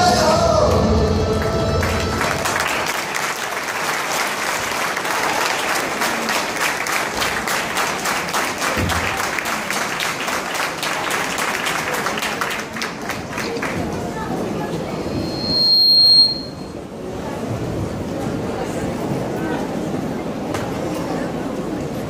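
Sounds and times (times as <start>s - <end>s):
audience applauding: 1.4s - 14.2s.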